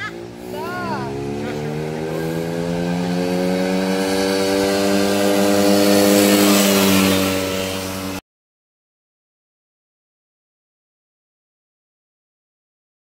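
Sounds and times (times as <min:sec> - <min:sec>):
atv engine droning: 0:00.0 - 0:08.2.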